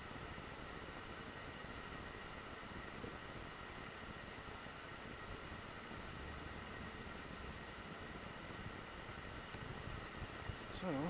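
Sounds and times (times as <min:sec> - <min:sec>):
faint outdoor hiss: 0:00.0 - 0:11.0
thin steady tones: 0:00.0 - 0:11.0.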